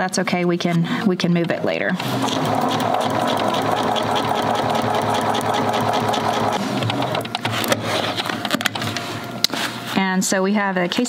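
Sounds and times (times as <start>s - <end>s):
sewing machine stitching: 1.4s - 7.6s.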